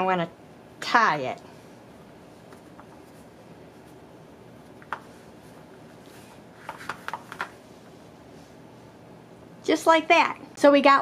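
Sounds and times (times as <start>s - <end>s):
plastic mat clicks and taps: 6.6s - 7.6s.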